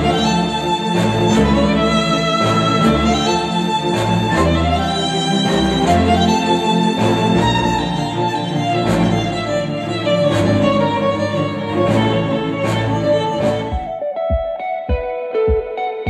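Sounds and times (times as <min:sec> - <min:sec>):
orchestral string music: 0:00.0 - 0:16.0
percussion hits: 0:13.6 - 0:15.8.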